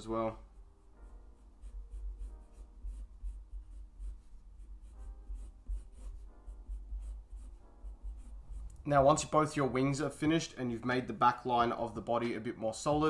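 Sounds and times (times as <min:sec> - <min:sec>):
pencil scratching on paper: 0:00.3 - 0:08.8.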